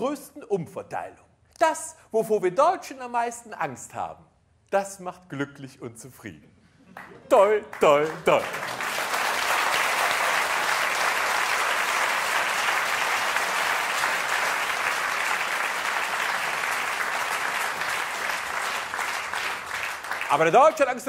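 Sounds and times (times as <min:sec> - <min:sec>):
audience applauding: 0:07.0 - 0:21.0.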